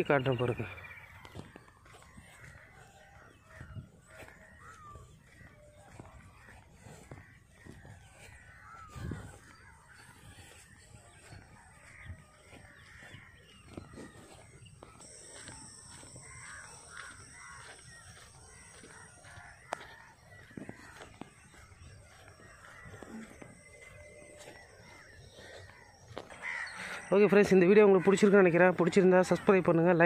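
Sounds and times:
crows cawing: 0.0s - 30.0s.

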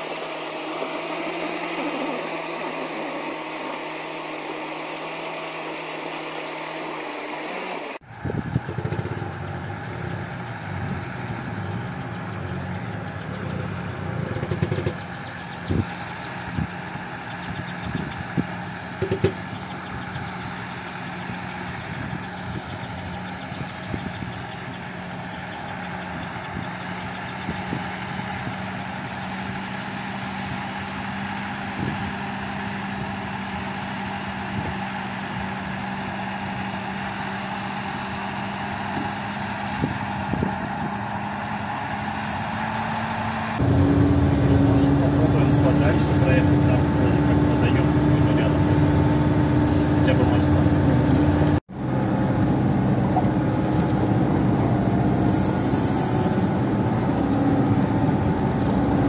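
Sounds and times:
all-terrain vehicle engine running: 0.0s - 59.0s
sharp knocks: 19.0s - 19.4s.

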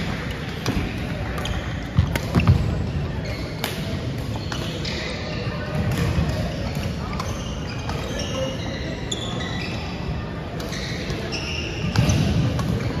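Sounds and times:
racket hitting shuttlecock: 0.3s - 2.6s
sneakers squeaking on wooden court: 0.4s - 13.0s.

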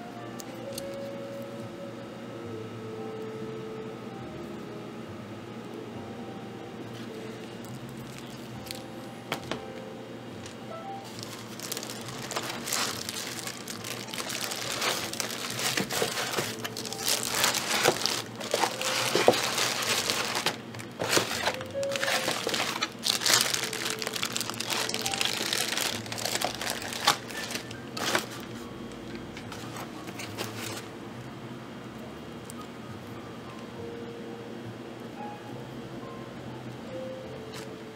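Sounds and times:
plastic bag crinkling: 7.6s - 9.1s, 11.0s - 28.5s.

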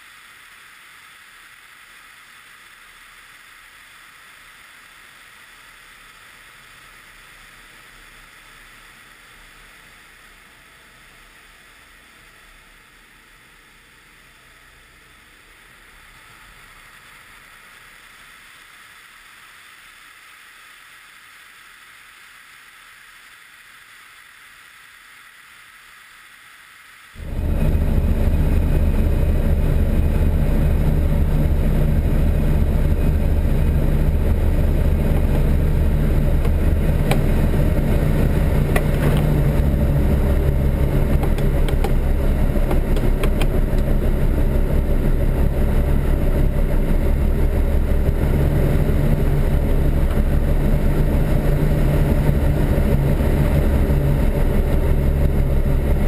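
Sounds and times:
rush of airflow: 27.1s - 56.0s
aircraft engine and propeller drone: 27.2s - 56.0s.

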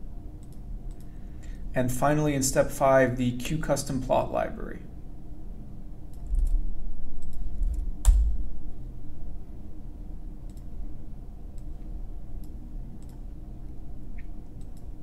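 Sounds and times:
computer mouse clicks: 0.4s - 1.1s, 7.2s - 8.2s, 10.5s - 10.7s, 12.4s - 13.3s, 14.2s - 15.0s.

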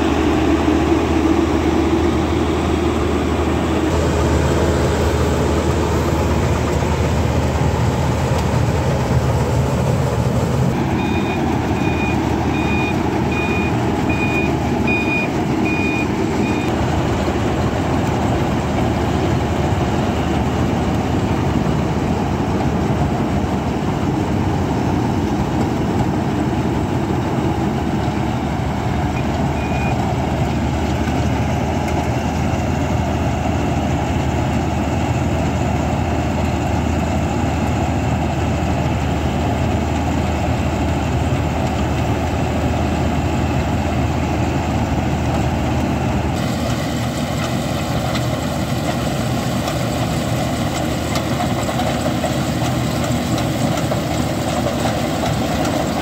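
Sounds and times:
combine harvester engine drone: 0.0s - 56.0s
high beeps: 10.8s - 16.7s, 29.2s - 30.0s.

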